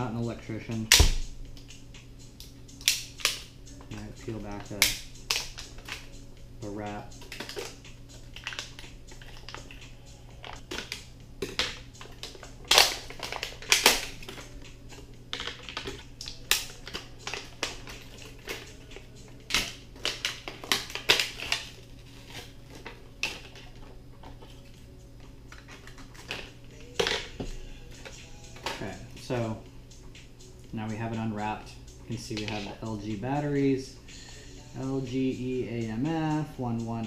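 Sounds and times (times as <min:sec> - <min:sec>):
plastic wrap crinkling and tearing: 0:12.2 - 0:14.4, 0:19.5 - 0:23.7.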